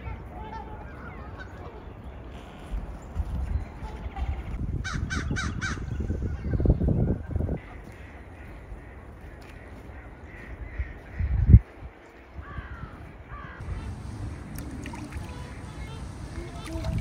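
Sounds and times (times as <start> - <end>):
crows cawing faintly: 4.2 - 6.1, 7.6 - 17.0
low steady rumble: 13.6 - 17.0.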